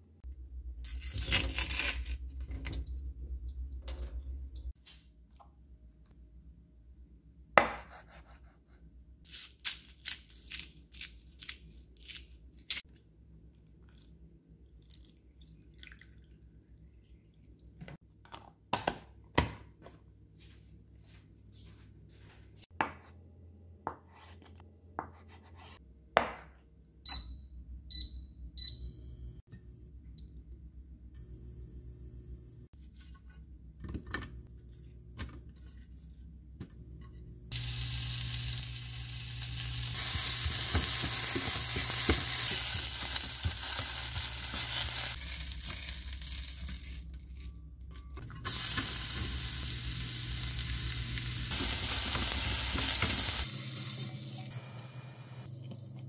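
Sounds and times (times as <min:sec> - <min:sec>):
cooktop short high beeps: 0:27.1 - 0:29.1.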